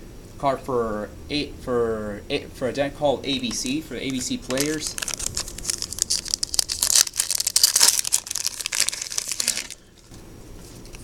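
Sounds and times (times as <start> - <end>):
foil wrappers crinkling: 3.4 - 10.1.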